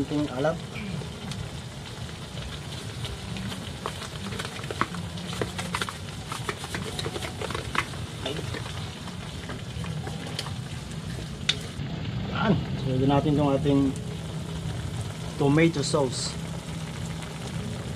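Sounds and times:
sauce sizzling: 0.0s - 17.9s.

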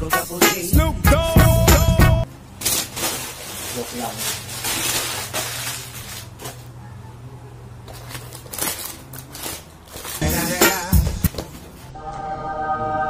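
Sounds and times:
music: 0.0s - 2.3s, 10.2s - 13.0s
packing paper crinkling: 2.5s - 6.8s, 7.8s - 11.4s.

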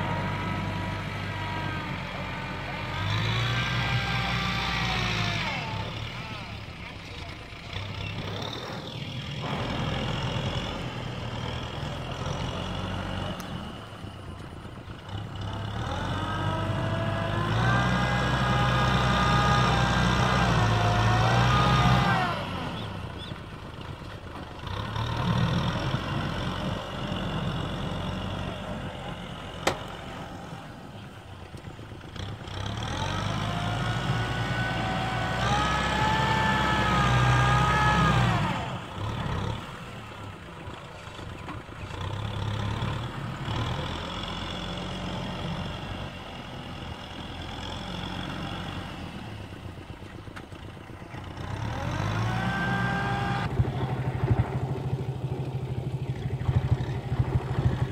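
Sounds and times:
tractor engine revving: 0.0s - 57.9s.

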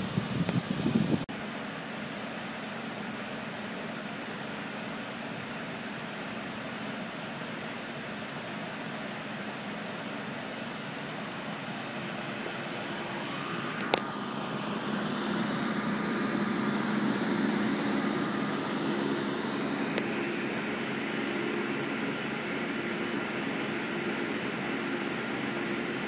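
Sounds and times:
fan-blown air rushing: 0.0s - 26.0s
heat pump humming: 0.0s - 26.0s.

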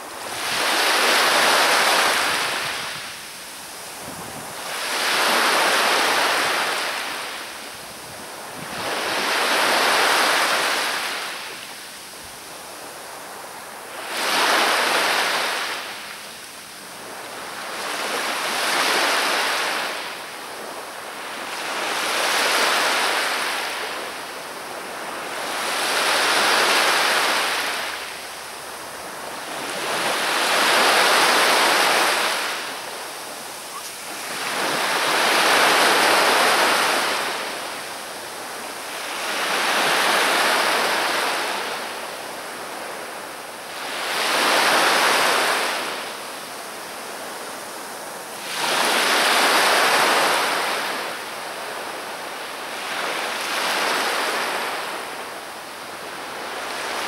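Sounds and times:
waves breaking on shore: 0.0s - 57.0s.

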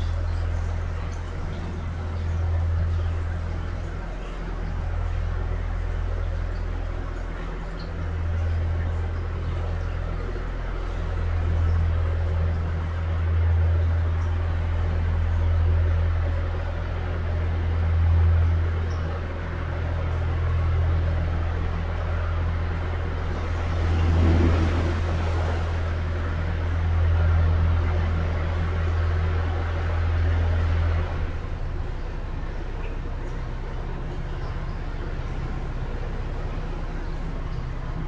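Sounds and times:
boat engine drone in tunnel: 0.0s - 38.0s.

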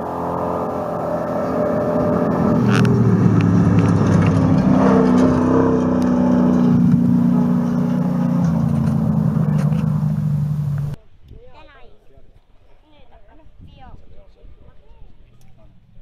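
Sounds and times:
truck engine at high revs: 0.0s - 11.0s.

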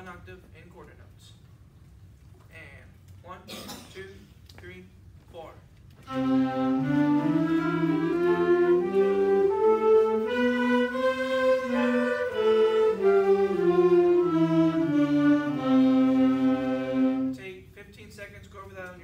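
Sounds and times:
wind band playing a scale: 6.0s - 17.4s.

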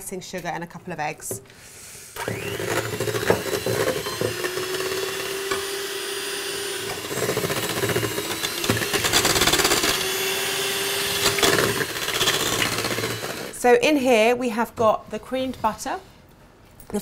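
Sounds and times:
electric hand mixer whisking: 2.2s - 13.6s.

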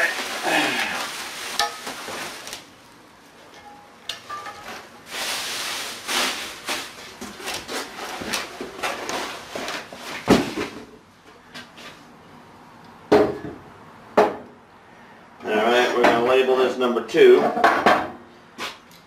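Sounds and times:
plastic bags rustling: 0.0s - 3.6s, 4.2s - 11.0s.

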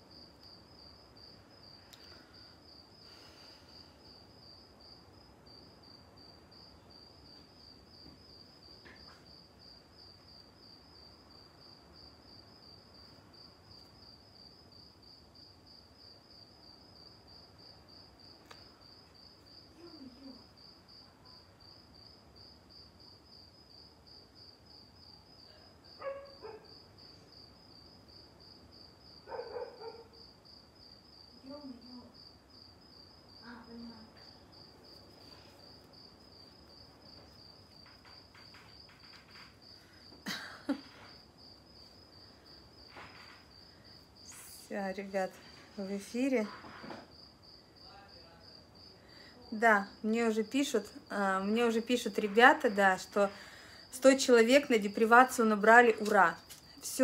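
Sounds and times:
cricket chirping: 0.0s - 57.0s
faint clicks: 1.9s - 2.2s.

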